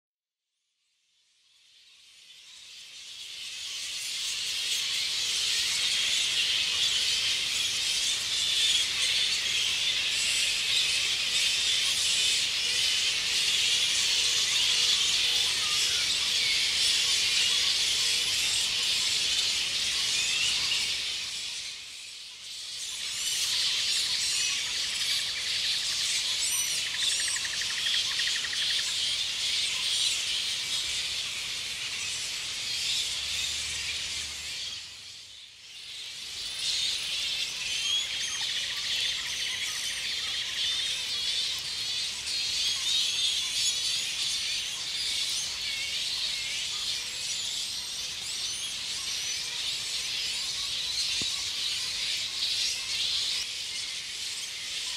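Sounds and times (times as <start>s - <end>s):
bats squealing and chattering: 3.7s - 35.2s.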